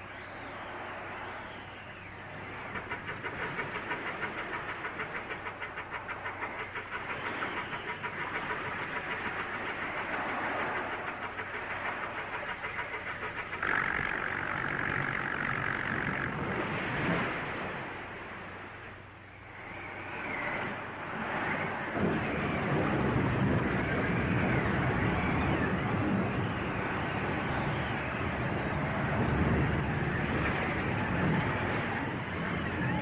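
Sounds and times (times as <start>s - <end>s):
film soundtrack hiss: 0.0s - 24.1s
motorboat engine chugging: 1.5s - 21.2s.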